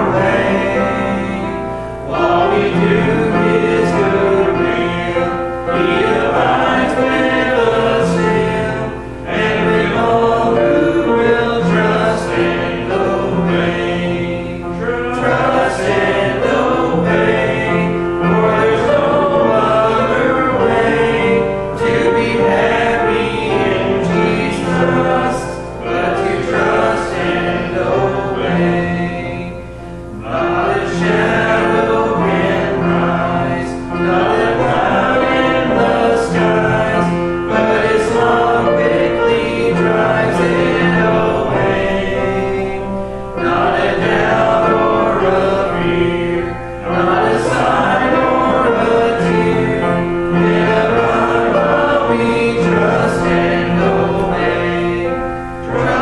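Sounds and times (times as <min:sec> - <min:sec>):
congregation singing a hymn: 0:00.0 - 0:56.0.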